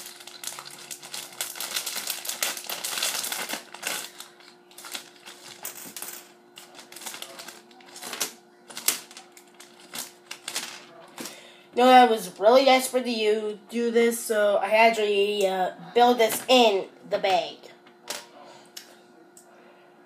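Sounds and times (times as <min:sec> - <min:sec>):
plastic pieces clicking and rattling: 0:04.8 - 0:10.9.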